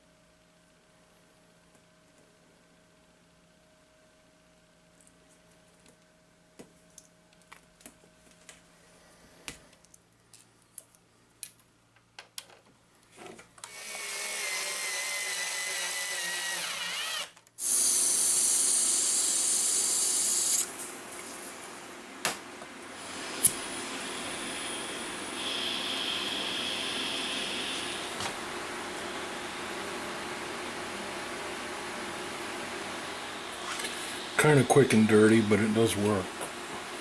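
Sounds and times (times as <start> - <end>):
cordless drill driving screw: 13.6 - 20.7.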